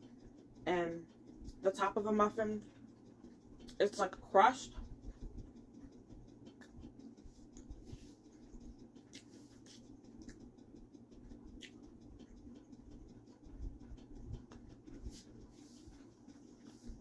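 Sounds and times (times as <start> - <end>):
quiet chewing: 5.1 - 10.5, 11.2 - 12.4.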